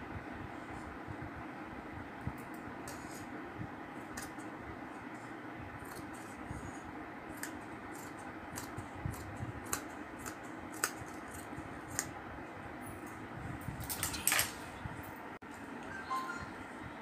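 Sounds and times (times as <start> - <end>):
scissors snipping fabric: 4.0 - 4.4, 5.8 - 6.4, 7.3 - 12.1.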